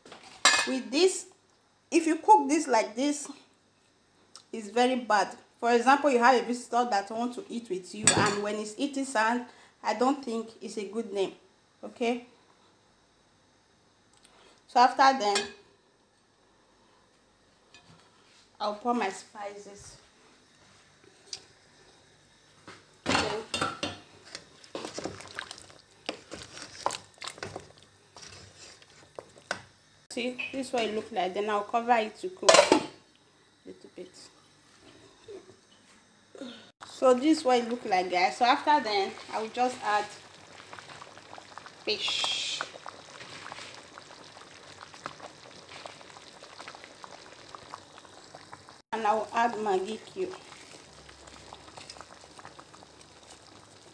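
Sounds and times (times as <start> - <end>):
soup boiling and bubbling: 20.4 - 30.1, 36.8 - 53.9.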